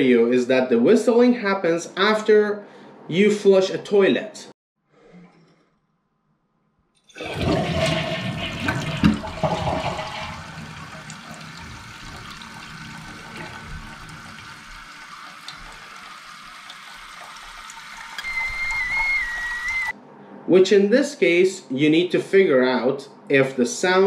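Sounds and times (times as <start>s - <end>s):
toilet flush water rushing: 7.1s - 19.9s
toilet tank refilling hiss: 7.2s - 19.9s
high wavering whistle: 18.2s - 20.0s.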